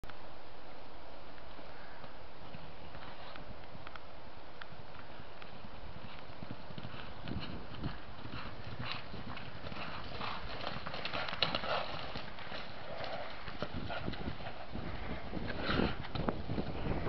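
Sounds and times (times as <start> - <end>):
horse hoofbeats on grass: 4.7 - 17.0.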